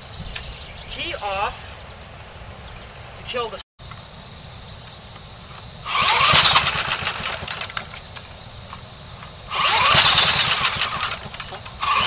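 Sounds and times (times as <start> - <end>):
cordless drill cranking small engine: 5.8 - 8.0, 9.4 - 12.0.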